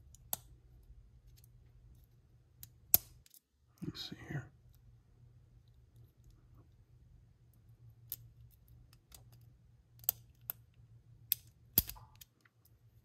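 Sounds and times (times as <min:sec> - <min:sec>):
low steady hum: 0:00.0 - 0:13.0
small metal clicks: 0:08.0 - 0:12.8.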